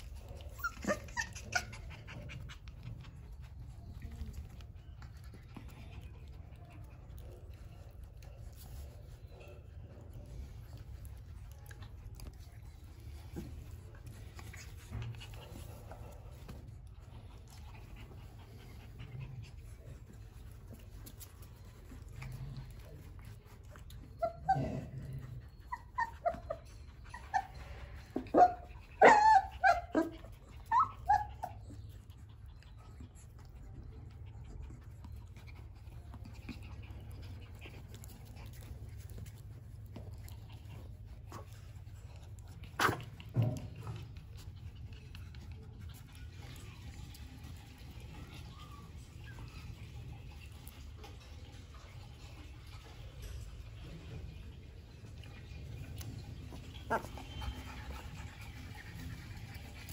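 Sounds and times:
puppies yipping and whimpering: 0:00.0 - 0:04.8, 0:23.4 - 0:50.7, 0:56.2 - 0:59.9.

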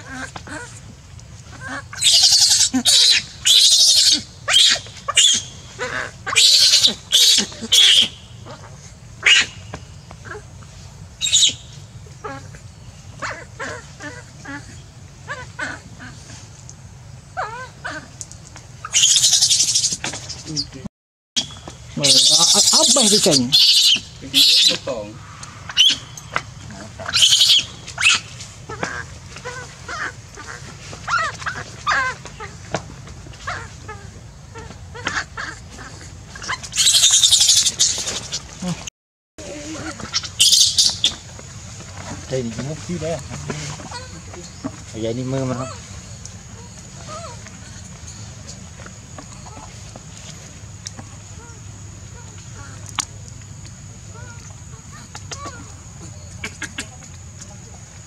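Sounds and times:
infant monkey screaming: 0:00.0 - 0:00.8, 0:01.5 - 0:09.6, 0:10.2 - 0:10.5, 0:11.2 - 0:12.6, 0:13.2 - 0:16.4, 0:17.4 - 0:18.1, 0:18.8 - 0:20.0, 0:21.4 - 0:32.7, 0:33.4 - 0:41.2, 0:42.8 - 0:47.9, 0:54.1 - 0:57.0.

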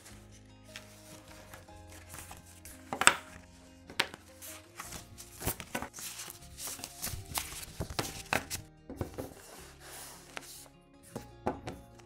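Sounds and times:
paper rustling: 0:00.0 - 0:10.7
quiet background music: 0:00.0 - 0:12.0
paper tapping on table: 0:02.9 - 0:03.3, 0:03.9 - 0:04.2, 0:07.4 - 0:09.4.

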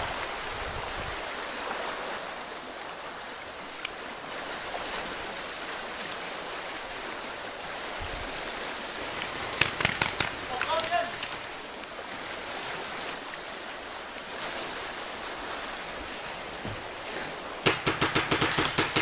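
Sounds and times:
rushing outdoor noise: 0:00.0 - 0:19.0
sharp click: 0:09.6 - 0:10.5.

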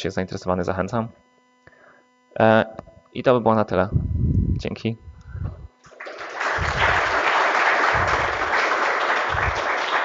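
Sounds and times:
audience applauding: 0:05.9 - 0:10.0.

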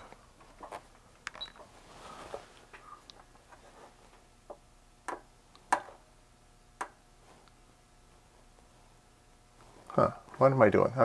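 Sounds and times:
test probes clicking on circuit board: 0:06.8 - 0:07.6.

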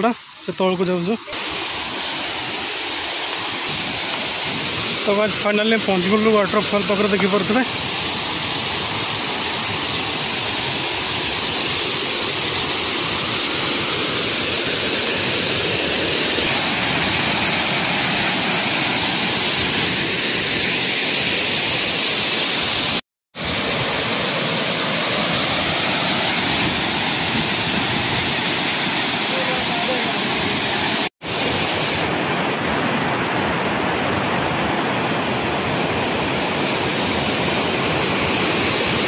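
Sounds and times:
waterfall crashing over rocks: 0:00.0 - 0:39.0.

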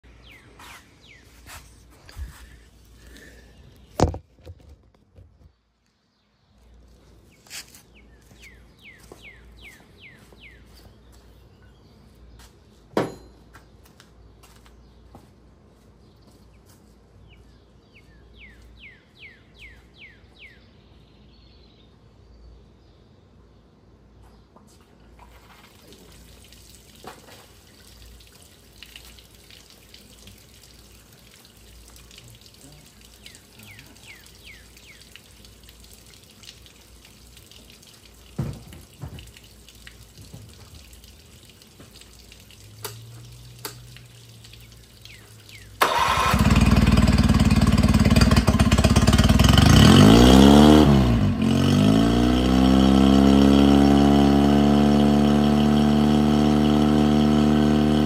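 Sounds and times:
outboard motor starting and idling: 0:45.8 - 0:58.0.

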